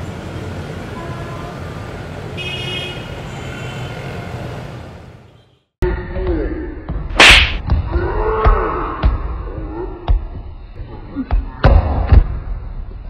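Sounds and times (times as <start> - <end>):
road traffic noise: 0.0 - 5.8
vehicle horn honking: 2.4 - 4.1.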